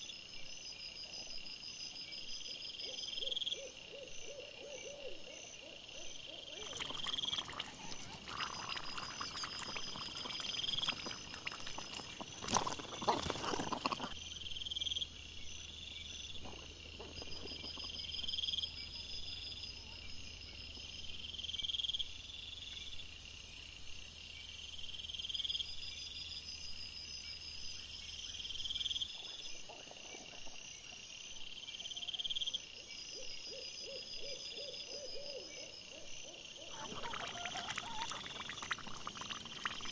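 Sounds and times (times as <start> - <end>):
insects chirping: 0.0 - 39.9
wild boar rustling and scraping: 11.0 - 14.2.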